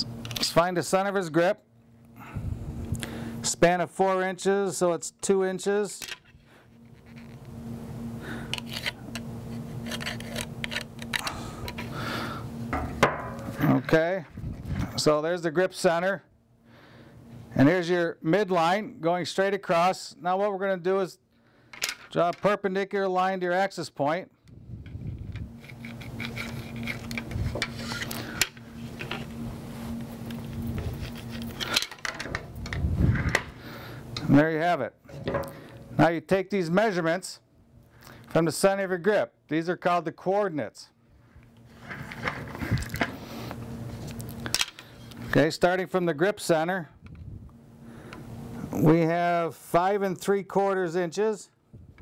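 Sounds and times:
faint steady hum: 0:00.0 - 0:52.0
ruler and marker rubbing on ball: 0:09.6 - 0:10.8, 0:25.6 - 0:28.1.

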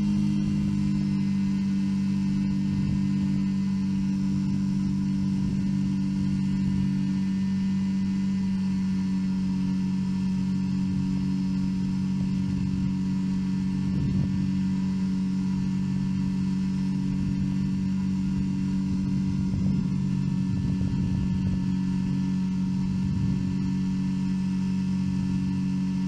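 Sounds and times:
aircraft engine droning: 0:00.0 - 0:26.0
wind buffeting microphone: 0:12.0 - 0:14.7, 0:15.7 - 0:24.0.

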